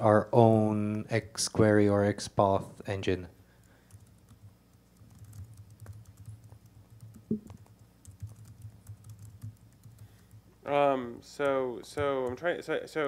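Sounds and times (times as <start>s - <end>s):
keyboard typing: 3.6s - 10.4s.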